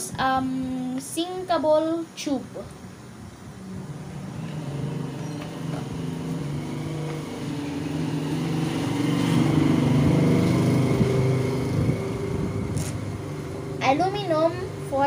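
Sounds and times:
engine running: 3.5 - 15.0.

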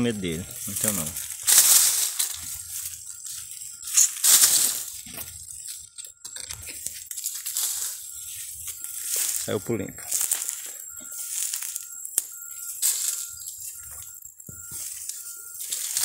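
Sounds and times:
dry leaves and twigs crunching: 0.0 - 16.0.

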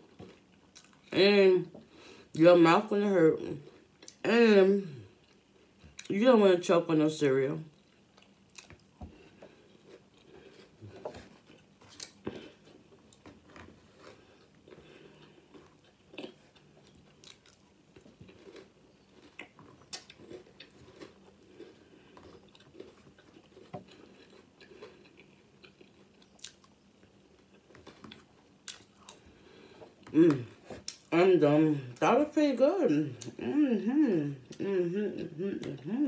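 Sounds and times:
chewing crunchy cereal: 0.0 - 1.2, 3.4 - 4.2, 5.0 - 6.1, 7.7 - 31.1.

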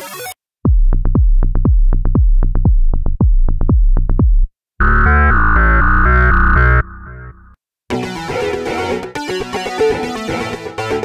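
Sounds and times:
buzzy synth chord over pulsing bass: 4.8 - 7.5
plucked synth bass line: 4.8 - 7.5.

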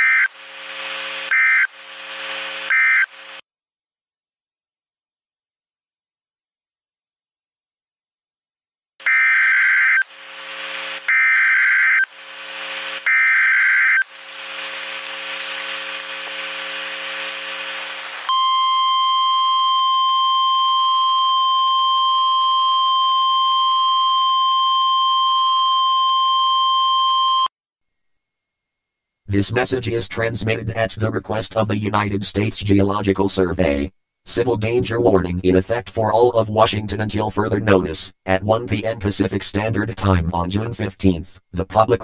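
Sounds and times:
steady electronic alarm tone: 0.0 - 0.4, 1.3 - 1.8, 2.7 - 3.2, 9.0 - 10.2, 11.0 - 12.2, 13.0 - 14.1, 18.3 - 27.5
screeching digital data tones: 1.3 - 1.8, 2.7 - 3.1, 9.0 - 10.2, 11.0 - 12.2, 13.0 - 14.2.

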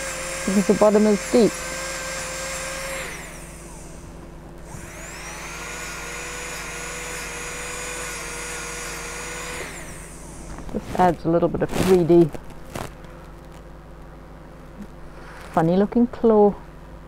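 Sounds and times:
engraving drill high whine: 0.0 - 11.2.

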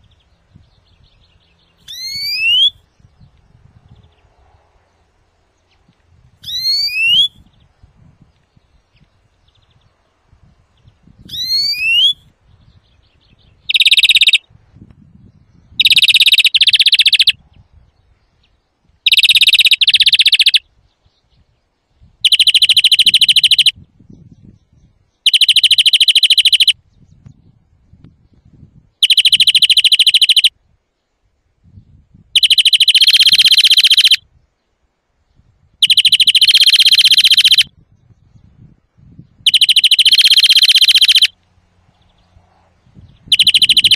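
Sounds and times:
rising bird whistle: 1.8 - 2.9, 6.4 - 7.6, 11.2 - 12.3, 13.6 - 14.4, 15.7 - 17.4, 19.1 - 20.6, 22.2 - 23.8, 25.2 - 26.8, 29.0 - 30.6, 32.4 - 34.3, 35.8 - 37.8, 39.3 - 41.4, 43.0 - 43.9.

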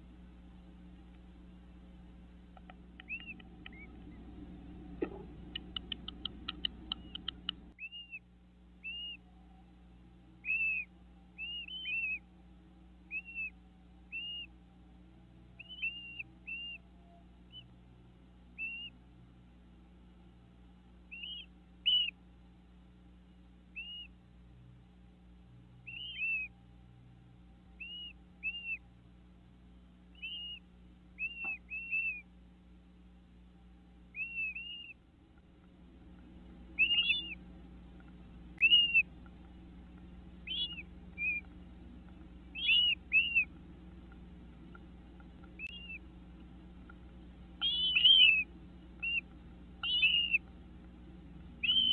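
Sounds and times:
faint steady hum: 0.0 - 51.9
high whistled bird calls: 3.0 - 4.2, 5.5 - 9.3, 10.4 - 12.2, 13.1 - 14.5, 15.6 - 17.7, 18.6 - 19.0, 21.1 - 22.2, 23.7 - 24.2, 25.8 - 26.5, 27.8 - 28.8, 30.1 - 32.3, 34.1 - 35.0, 36.7 - 37.4, 38.5 - 39.1, 40.4 - 41.5, 42.5 - 43.6, 45.5 - 46.0, 47.6 - 50.4, 51.6 - 51.9.

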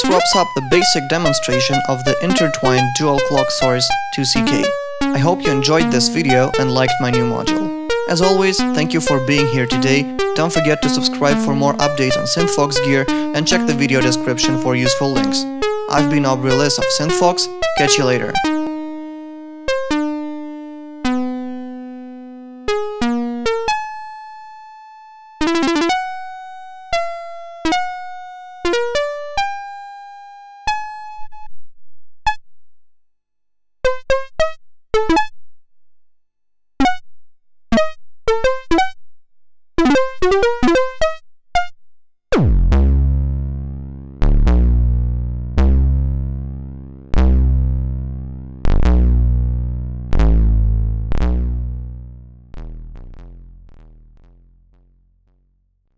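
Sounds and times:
deep buzzy bass note: 0.0 - 20.0, 42.3 - 55.8
plucked synth notes: 0.0 - 24.4, 25.4 - 29.6, 39.8 - 41.0, 42.3 - 55.5.

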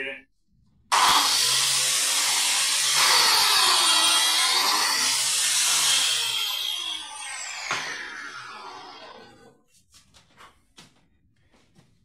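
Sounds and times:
biscuit joiner cutting wood: 0.9 - 9.6.

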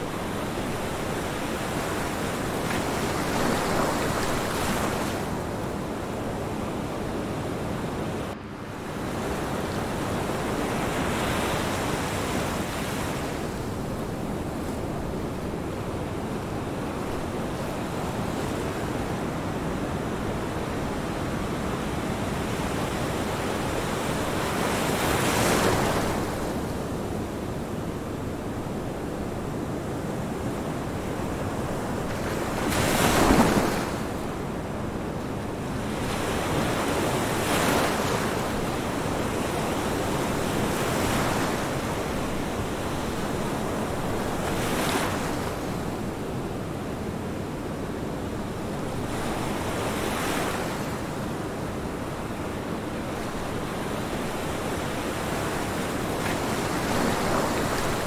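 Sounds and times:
ocean waves breaking: 31.3 - 34.4, 53.2 - 58.0.

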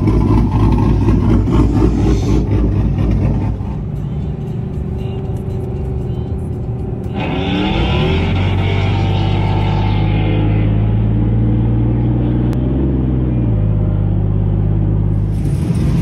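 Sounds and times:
truck engines running: 0.0 - 16.0
music playing: 3.5 - 10.7.

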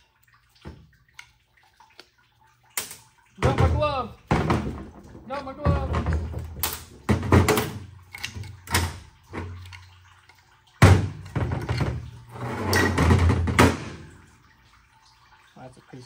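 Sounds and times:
metal knocks and clunks: 3.4 - 9.8, 10.8 - 14.2.

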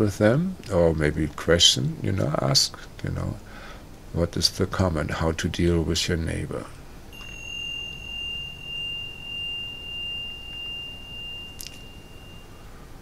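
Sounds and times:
metal chime ringing: 7.1 - 13.0.

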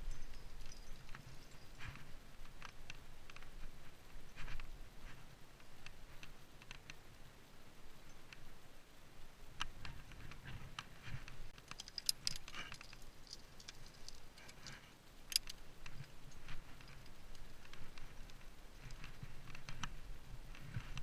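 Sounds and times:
metal climbing hardware clinking: 11.6 - 19.8.

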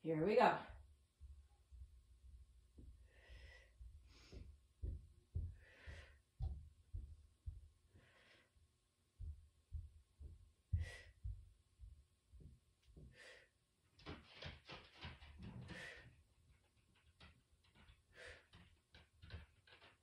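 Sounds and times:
soft low thumps of movement: 0.3 - 13.3
woman breathing: 2.8 - 11.5, 12.9 - 13.6, 15.4 - 16.3, 18.0 - 18.7.

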